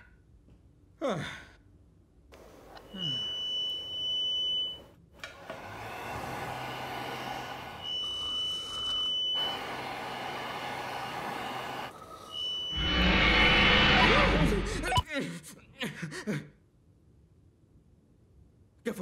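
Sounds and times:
electric hand dryer blowing: 5.3s - 8.0s, 9.4s - 12.0s
high electronic beep: 12.4s - 14.1s.

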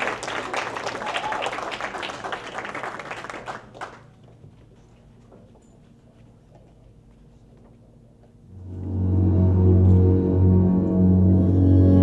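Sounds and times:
audience applauding: 0.0s - 4.2s.

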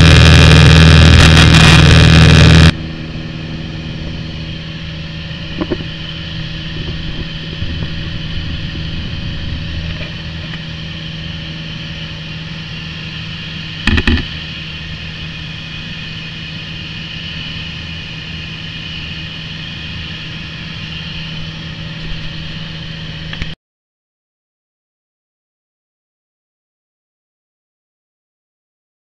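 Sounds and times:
loud burst: 0.0s - 2.8s
light aircraft engine droning: 0.0s - 23.6s.

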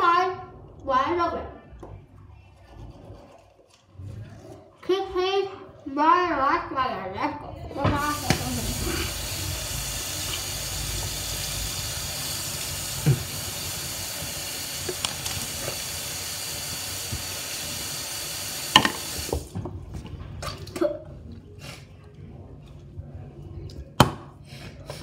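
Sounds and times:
sink tap running: 7.8s - 19.6s.

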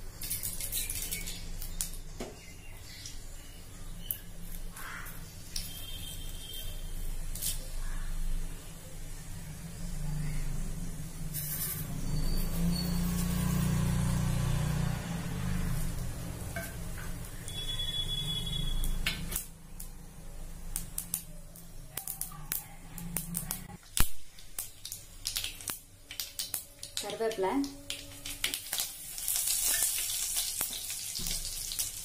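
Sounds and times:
mustard seeds popping in oil: 0.1s - 3.2s, 15.9s - 32.0s.

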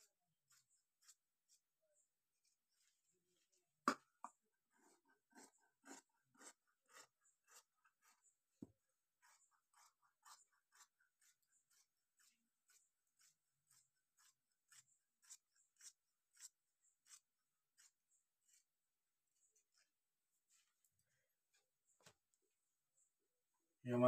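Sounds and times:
shears snipping fabric: 9.2s - 21.0s.

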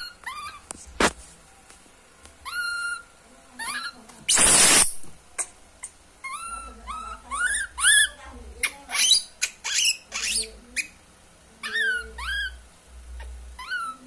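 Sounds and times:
baby monkey distress calls: 2.4s - 11.0s, 11.6s - 12.6s, 13.2s - 14.0s.

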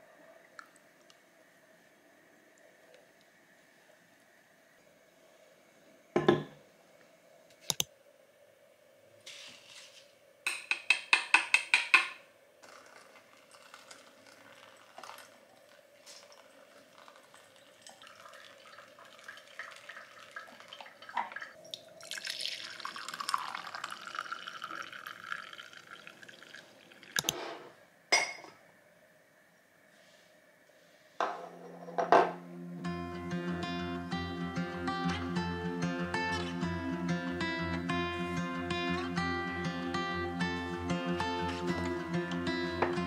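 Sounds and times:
coffee pouring into mug: 12.6s - 27.3s
coffee trickling and dripping: 12.6s - 27.3s
soft guitar music: 32.4s - 43.0s.

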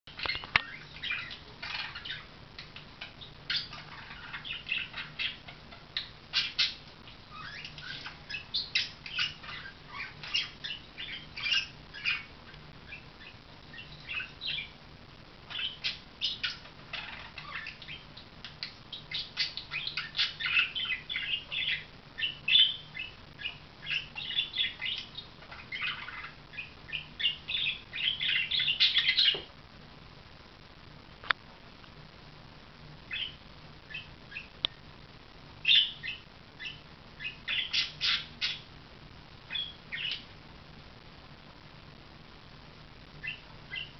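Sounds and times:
budgerigar chattering: 0.1s - 12.3s, 35.7s - 38.6s, 39.5s - 40.3s.

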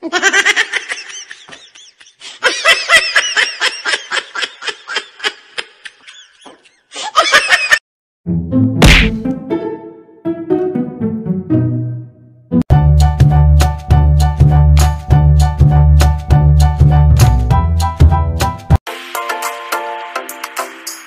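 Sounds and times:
high-pitched giggling: 0.0s - 7.8s
instrumental music: 8.3s - 21.0s.

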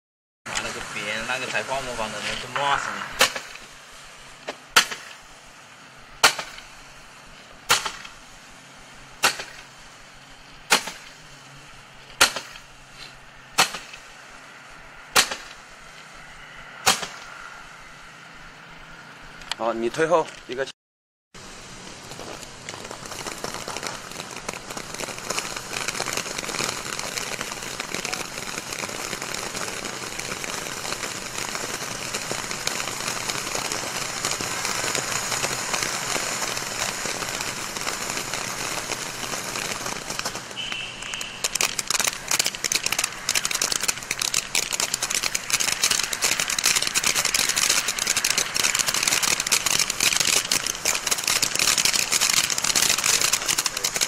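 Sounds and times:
fountain firework hissing and crackling: 0.5s - 20.7s, 21.4s - 54.0s.

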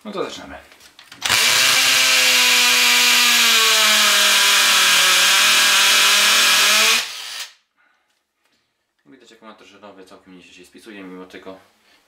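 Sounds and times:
drill whining into cement block: 1.2s - 7.6s.

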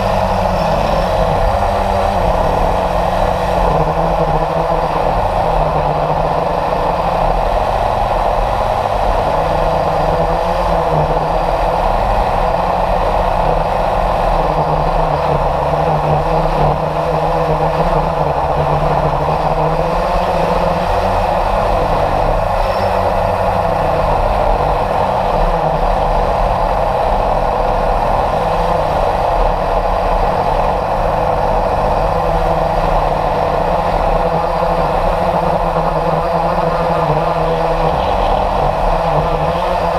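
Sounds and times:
air rushing over microphone: 0.0s - 39.9s
model jet motor drone: 0.0s - 39.9s.

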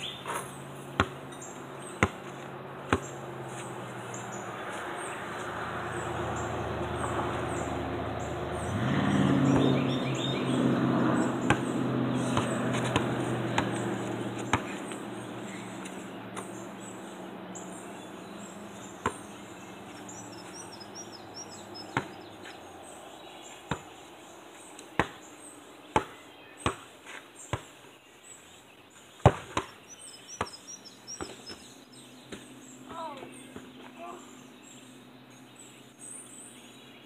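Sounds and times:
birds chirping: 0.0s - 37.0s
basketball bouncing on hard ground: 0.1s - 3.8s, 9.5s - 17.7s, 18.3s - 22.6s, 23.7s - 26.9s, 27.5s - 27.8s, 29.2s - 31.7s, 32.3s - 32.5s.

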